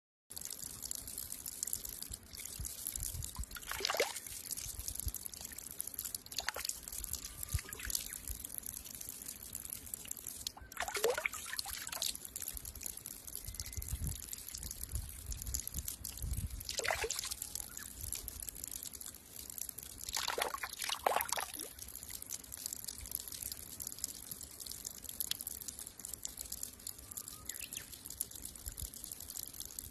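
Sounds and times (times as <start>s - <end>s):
water splashing: 0.3s - 26.9s
water trickling onto rocks: 0.3s - 29.9s.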